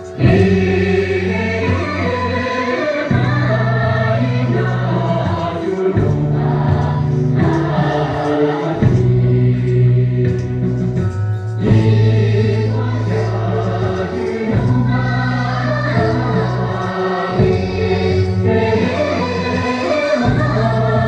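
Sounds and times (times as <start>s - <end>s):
musical accompaniment: 0.0s - 21.0s
voices singing together: 0.0s - 21.0s.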